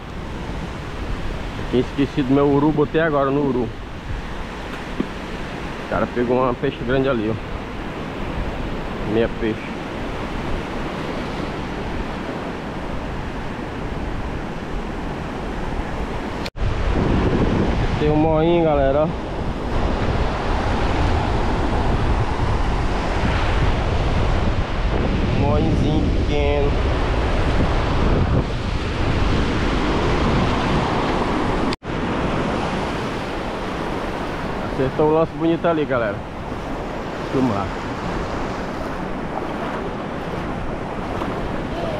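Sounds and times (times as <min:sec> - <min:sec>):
surf breaking on beach: 0:00.0 - 0:41.9
wind on microphone: 0:00.0 - 0:41.9
surf breaking in shallows: 0:26.1 - 0:41.9.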